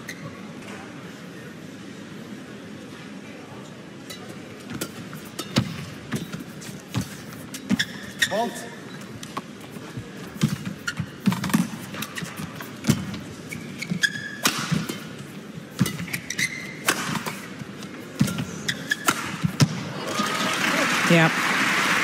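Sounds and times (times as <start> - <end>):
shoes squeaking on court: 0.0 - 0.6, 4.1 - 19.8
racket hitting shuttlecock: 10.4 - 13.2, 13.8 - 17.6, 18.2 - 19.9.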